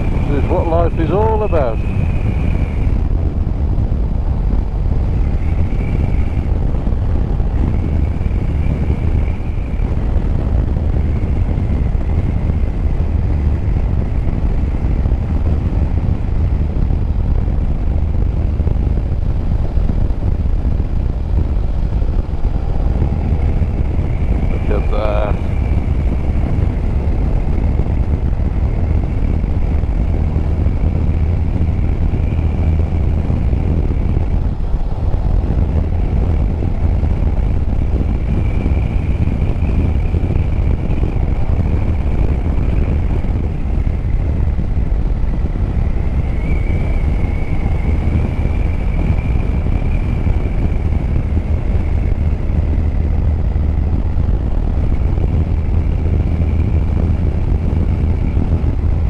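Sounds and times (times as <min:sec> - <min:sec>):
motorcycle engine running: 0:00.0 - 0:59.0
wind rumble on microphone: 0:00.0 - 0:59.0.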